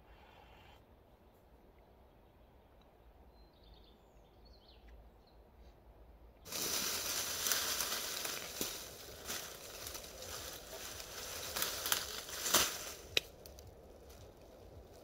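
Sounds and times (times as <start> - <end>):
loud rustling and crunching: 6.5 - 15.0.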